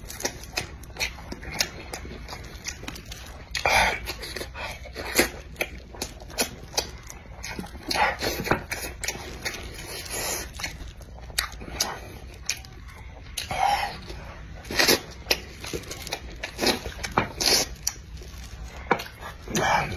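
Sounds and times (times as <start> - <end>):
chewing and lip-smacking: 0.0 - 19.9.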